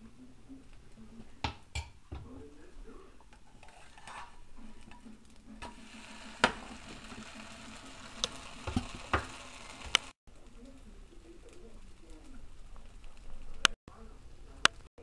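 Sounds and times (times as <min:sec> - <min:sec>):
pancake sizzling in frying pan: 0:05.6 - 0:13.6.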